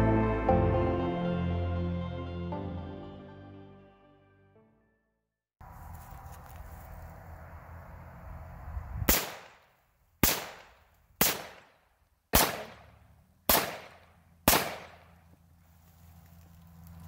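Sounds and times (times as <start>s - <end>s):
rifle shots ringing out: 9.1s - 9.6s, 10.2s - 12.9s, 13.5s - 15.2s.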